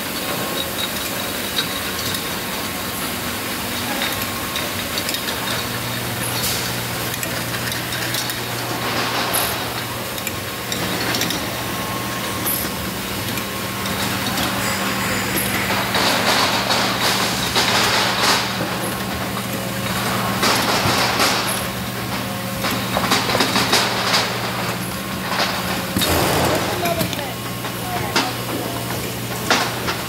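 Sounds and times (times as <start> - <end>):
low machine hum: 0.0 - 30.0
mechanical whir: 26.0 - 27.2.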